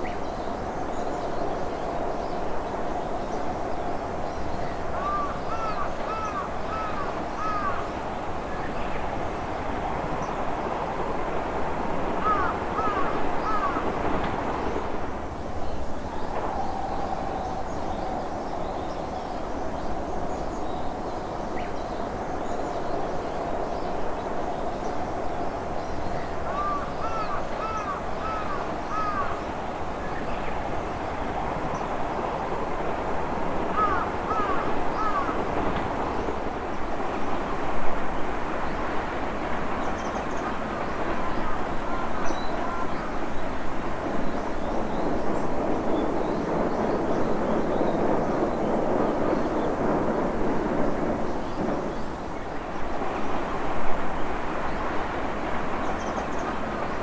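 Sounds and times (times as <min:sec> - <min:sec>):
distant electric train running: 0:00.0 - 0:57.0
crow cawing: 0:05.0 - 0:07.9, 0:12.2 - 0:13.8, 0:26.5 - 0:29.4, 0:33.8 - 0:35.4.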